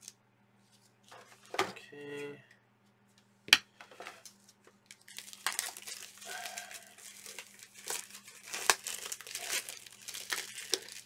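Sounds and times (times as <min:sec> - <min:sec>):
plastic wrap crinkling and tearing: 0:04.2 - 0:11.0.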